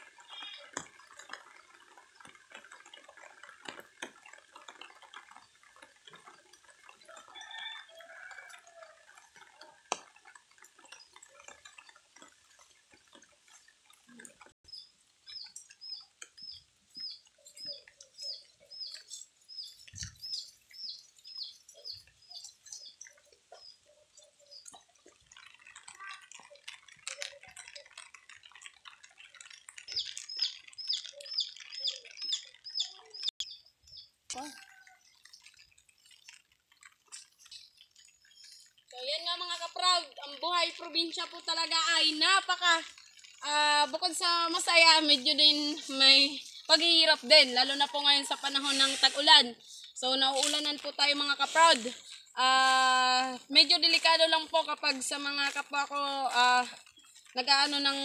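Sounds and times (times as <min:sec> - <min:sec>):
bird calls: 0:13.2 - 0:28.7, 0:29.4 - 0:38.8
bird chirping: 0:14.7 - 0:25.8, 0:29.7 - 0:39.7.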